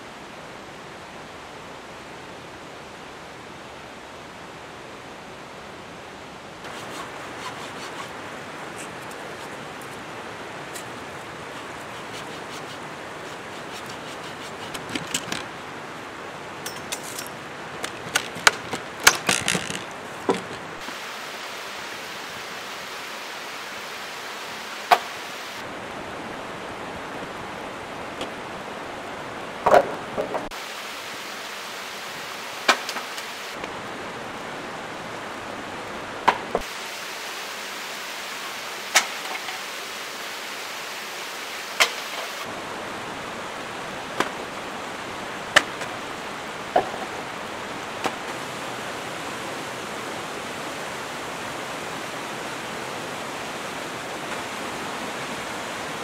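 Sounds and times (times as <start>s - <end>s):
stream running over rocks: 0.0s - 56.0s
sharp knocks and clicks: 17.8s - 20.7s.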